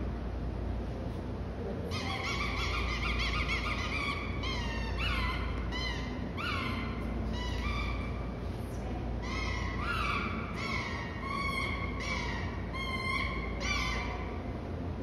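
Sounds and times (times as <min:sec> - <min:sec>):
dog whining and yelping: 0:02.0 - 0:08.3, 0:09.3 - 0:14.3.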